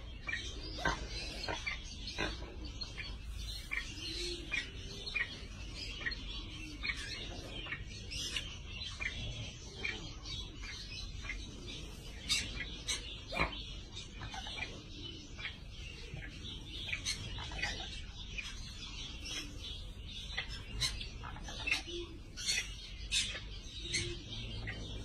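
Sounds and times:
small birds chirping: 0.0 - 25.0.

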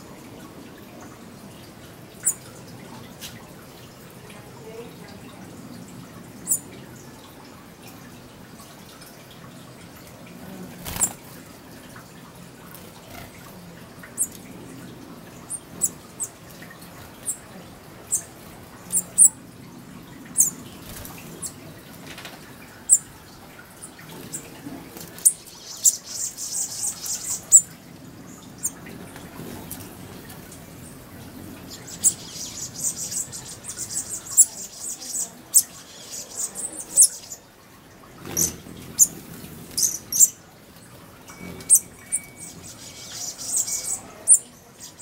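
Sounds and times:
small birds chipping: 0.5 - 8.3, 9.2 - 12.0, 12.6 - 37.5, 38.2 - 45.0
birds twittering: 2.1 - 2.8, 6.3 - 7.2, 12.9 - 21.9, 22.6 - 37.5, 38.2 - 45.0.

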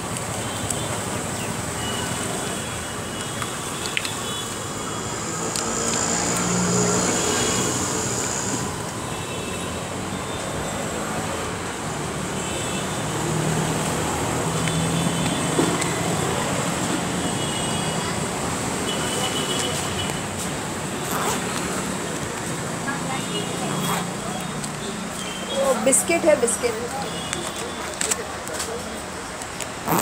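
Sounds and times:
passing vehicles humming: 4.1 - 9.0, 19.6 - 30.0.

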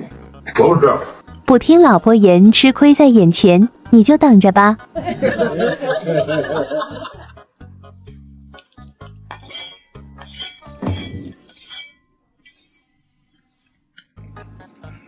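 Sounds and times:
spoon clinking against glass bowl: 9.3 - 12.9.

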